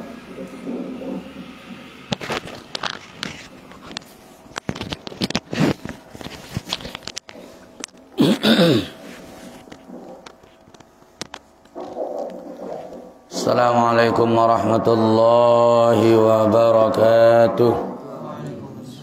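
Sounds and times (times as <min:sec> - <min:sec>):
microphone handling noise: 0:02.1 - 0:07.8.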